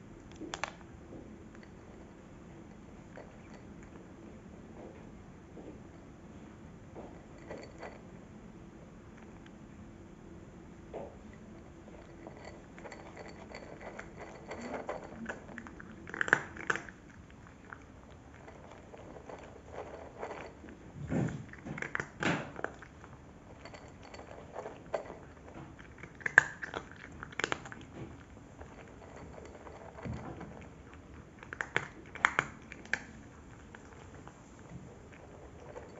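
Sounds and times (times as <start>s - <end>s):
cat crunching dry kibble: 11.2s - 35.9s
kibble clicking on glass bowl: 11.3s - 20.7s, 21.6s - 34.2s.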